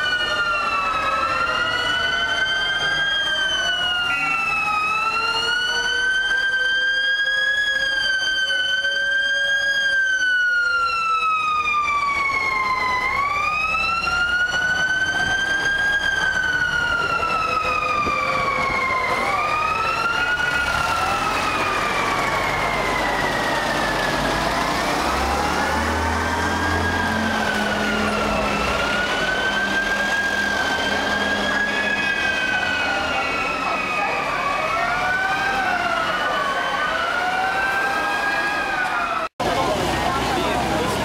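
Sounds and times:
siren wailing: 0.0s - 41.0s
vehicle engine rumble: 38.9s - 41.0s.

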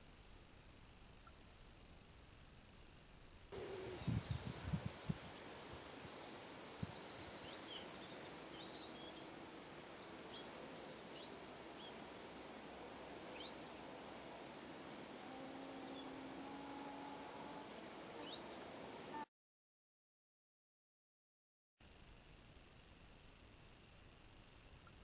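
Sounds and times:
birds chirping and trilling: 3.6s - 19.2s.

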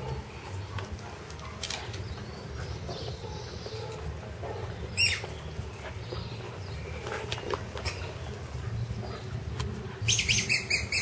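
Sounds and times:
puppy squeak: 10.1s - 11.0s.

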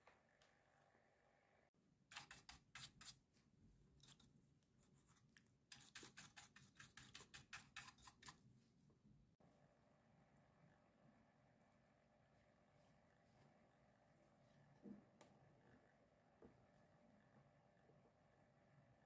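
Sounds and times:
brush scrubbing fan blades: 5.7s - 8.4s.

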